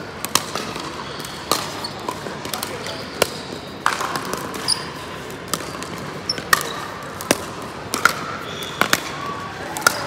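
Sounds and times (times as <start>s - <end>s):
ball bounces: 0.2s - 10.0s.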